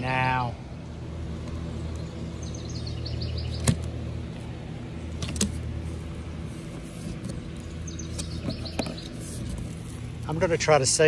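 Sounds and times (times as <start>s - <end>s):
steady low hum: 0.0s - 11.0s
bird chirping: 0.8s - 4.1s, 7.3s - 10.1s.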